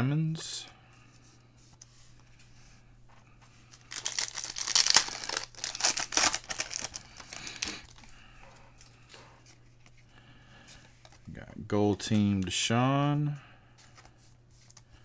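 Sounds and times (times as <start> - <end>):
foil wrapper ripping and crinkling: 3.9 - 8.0.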